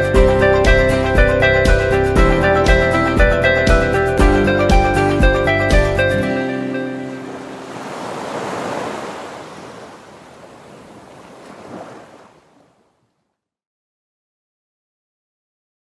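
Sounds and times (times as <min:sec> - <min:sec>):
background music: 0:00.0 - 0:07.9
soft surf-like noise: 0:06.8 - 0:12.7.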